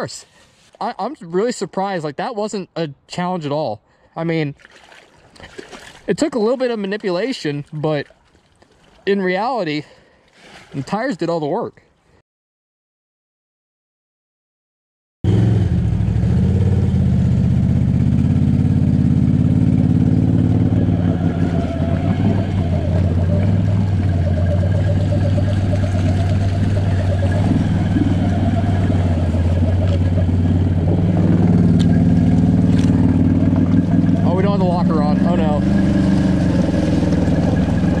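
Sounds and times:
atv engine running: 0:15.3 - 0:38.0.

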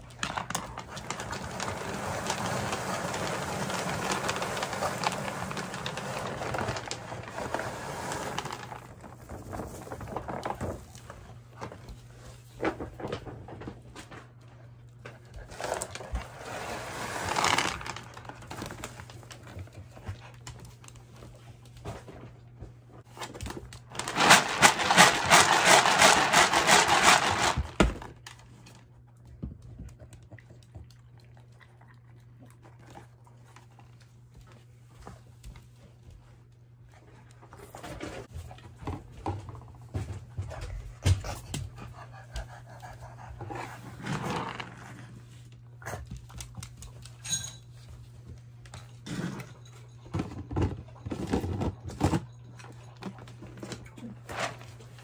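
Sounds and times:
dry kibble pouring into plastic bin: 0:00.2 - 0:10.8, 0:15.6 - 0:18.9, 0:23.9 - 0:28.0.

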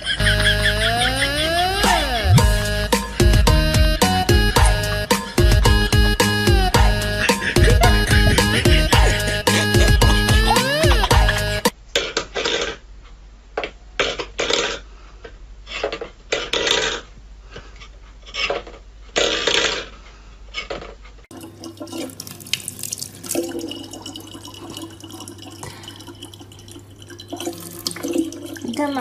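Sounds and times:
faucet running into plastic bottle: 0:21.3 - 0:29.0.

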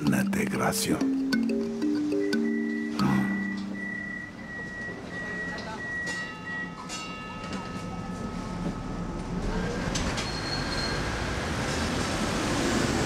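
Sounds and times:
tram wheels rumbling on rails: 0:04.5 - 0:13.0
high wheel squeal: 0:09.4 - 0:11.8.

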